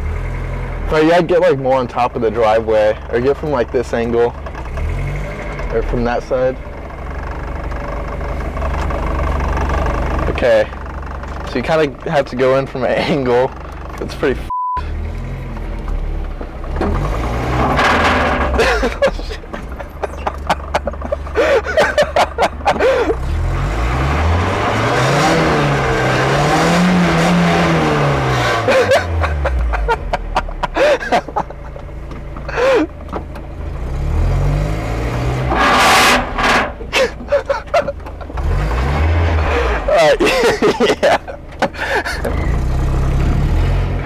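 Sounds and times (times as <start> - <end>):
car engine revving: 0.0 - 44.0
knocks clicks and squeaks: 1.4 - 6.6, 7.2 - 14.5, 15.2 - 24.0, 28.2 - 33.8, 35.2 - 42.7
car underside scraping: 15.6 - 22.9, 35.4 - 42.4.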